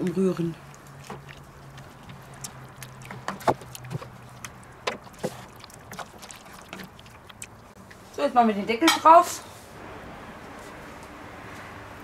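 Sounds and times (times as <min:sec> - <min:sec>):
wooden spoon stirring stew in pot: 0:00.0 - 0:08.0.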